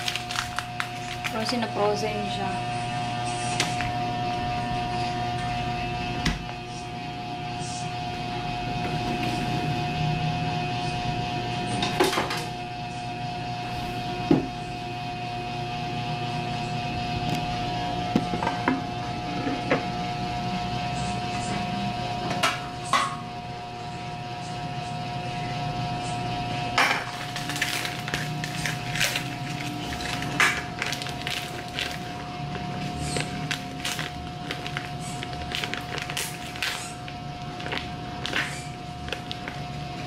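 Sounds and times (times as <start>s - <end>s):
frozen food knocking and clattering: 0.0s - 1.8s, 26.8s - 39.7s
steady electrical hum: 0.0s - 40.0s.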